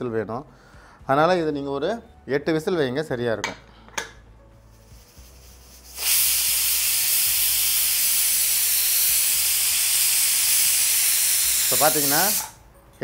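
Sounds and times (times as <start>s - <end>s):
pressure cooker steam hissing: 5.0s - 12.6s.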